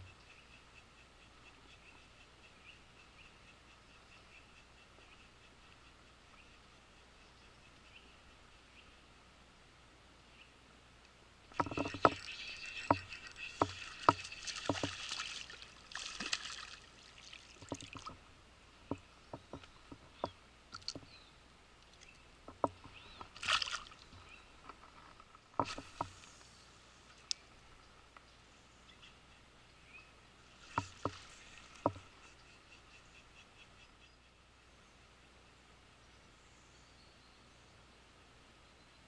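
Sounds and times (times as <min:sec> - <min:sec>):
sharp clicks and knocks: 0:11.5 - 0:15.0, 0:18.9 - 0:21.1, 0:21.9 - 0:23.4, 0:31.8 - 0:32.1
water splashing as someone wades: 0:11.5 - 0:18.2, 0:23.3 - 0:24.1.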